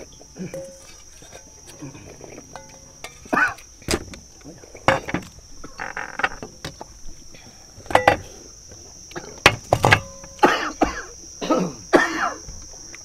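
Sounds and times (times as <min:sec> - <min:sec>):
metal spoons scraping steel bowls: 0:00.5 - 0:03.7
person coughing: 0:03.3 - 0:03.6, 0:10.4 - 0:12.4.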